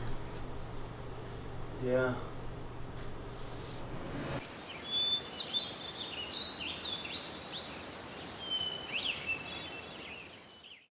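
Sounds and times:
steady background hiss: 0.0 - 10.8
birds chirping: 4.4 - 10.9.

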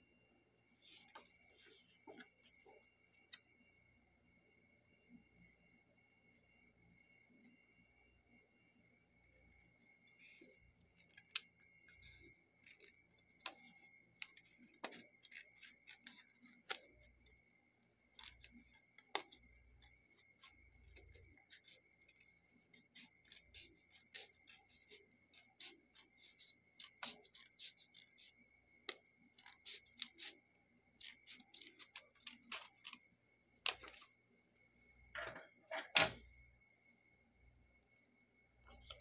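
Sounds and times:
scissors snipping paper: 10.2 - 34.1.

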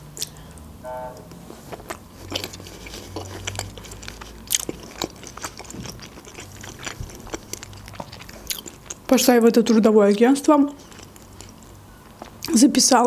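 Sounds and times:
brief hum: 0.8 - 1.5
mouth chewing wet clicks: 1.9 - 9.3, 10.1 - 12.6.

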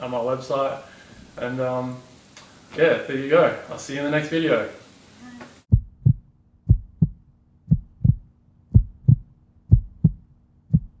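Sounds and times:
heartbeat thumps: 5.7 - 11.0.

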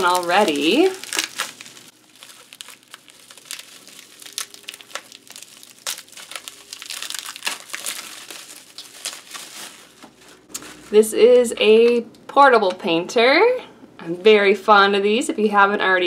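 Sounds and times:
bubble wrap crinkling: 0.0 - 11.1.

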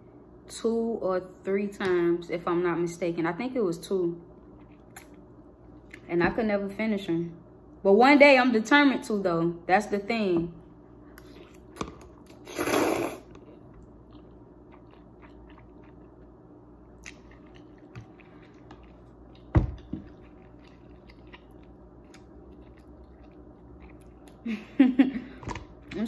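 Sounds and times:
person slurping noodles: 12.4 - 13.4
wet chewing: 13.3 - 16.3, 17.0 - 24.4.

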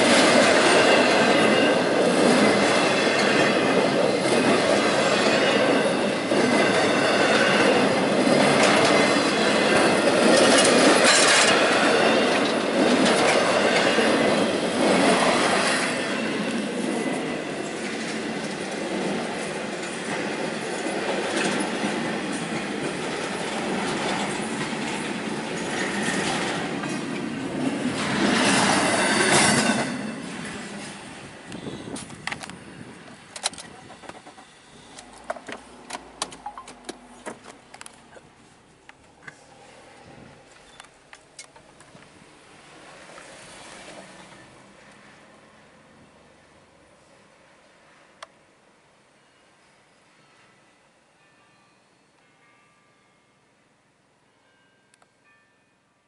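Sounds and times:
freight train wheels rumbling: 0.0 - 46.9
sharp clicks and knocks: 35.0 - 38.0.

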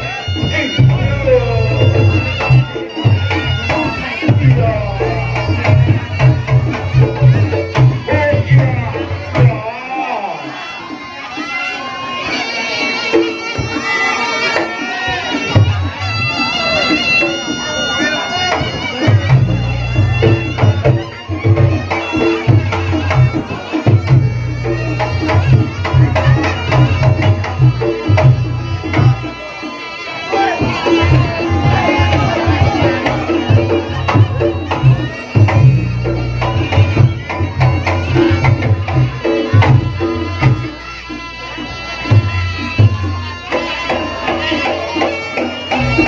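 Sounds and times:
hand drums beating: 0.0 - 9.7, 18.3 - 29.4, 30.3 - 41.2
high wavering melody: 0.0 - 46.0
reedy shawm: 0.0 - 46.0.

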